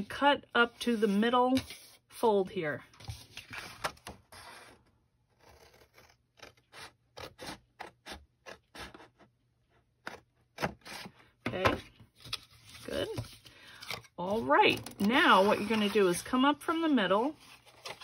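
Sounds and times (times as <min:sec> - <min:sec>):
paper rustling: 0:17.4 - 0:18.0.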